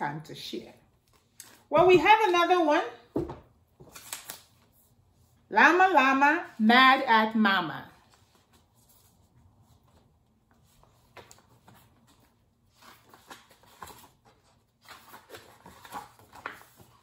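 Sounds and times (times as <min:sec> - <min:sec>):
book pages turning: 0:03.7 - 0:05.0, 0:08.0 - 0:17.0.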